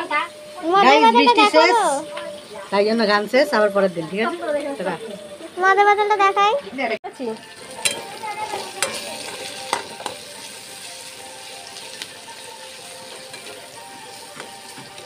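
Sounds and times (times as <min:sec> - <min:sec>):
vegetables sizzling in a pan: 0:00.0 - 0:15.0
spatula scraping a pan: 0:07.6 - 0:10.9, 0:13.0 - 0:15.0.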